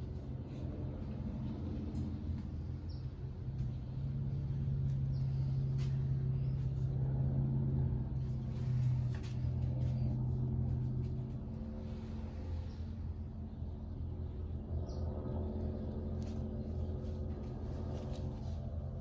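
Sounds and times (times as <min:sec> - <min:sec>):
low mechanical hum: 0:00.0 - 0:19.0.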